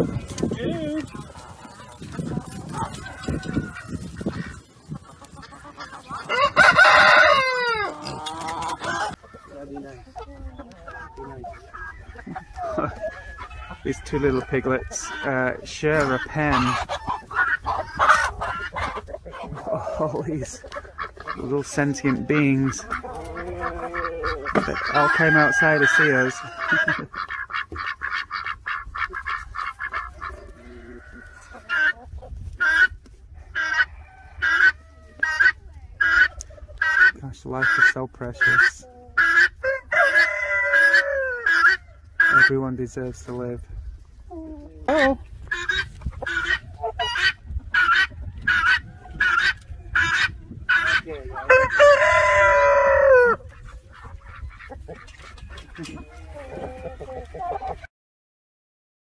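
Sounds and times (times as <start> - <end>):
waterfowl honking: 0.0 - 9.6, 16.0 - 30.4, 33.6 - 42.5
ducks quacking: 0.0 - 42.8, 44.6 - 57.9
chickens calling: 0.0 - 57.9
rooster crowing: 2.9 - 4.0, 6.3 - 8.0, 25.0 - 26.8, 39.6 - 41.9, 51.4 - 53.4.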